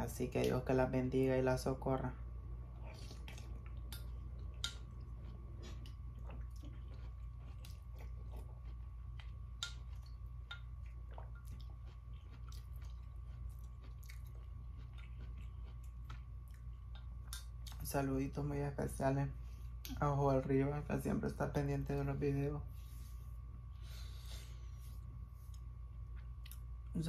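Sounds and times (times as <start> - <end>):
steady low hum: 0.0 - 27.0
chewing: 2.7 - 17.8, 25.4 - 26.7.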